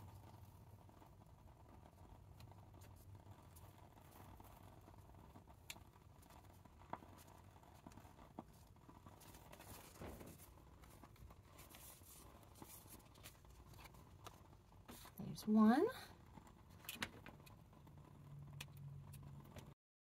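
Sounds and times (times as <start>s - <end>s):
soft paper rustles: 6.1s - 15.4s.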